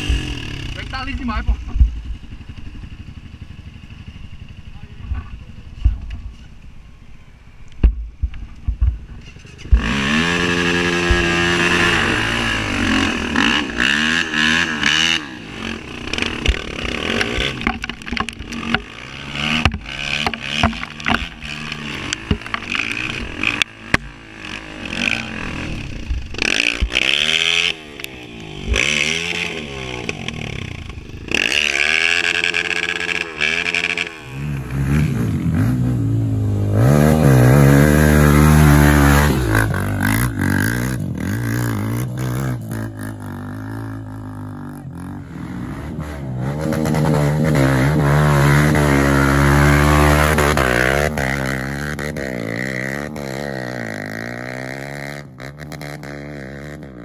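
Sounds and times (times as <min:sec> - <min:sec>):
dirt bike engine revving: 0:00.0 - 0:06.1, 0:09.2 - 0:57.0
knocks and clatters: 0:16.1 - 0:24.2.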